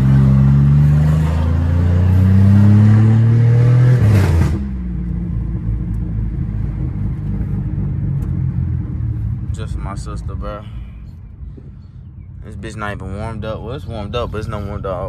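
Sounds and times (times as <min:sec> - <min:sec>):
car engine accelerating: 0:00.0 - 0:10.4
road rumble: 0:00.0 - 0:15.0.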